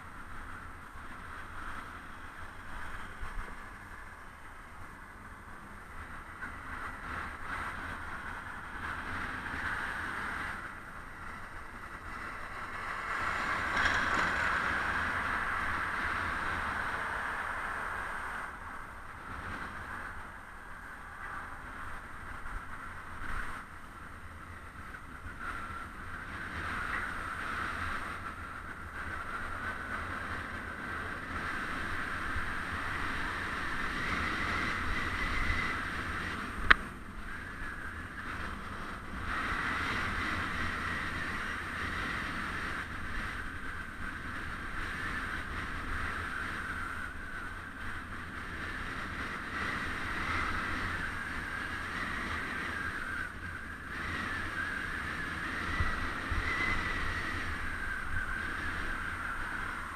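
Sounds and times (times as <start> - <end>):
wind and road noise: 0.0 - 59.9.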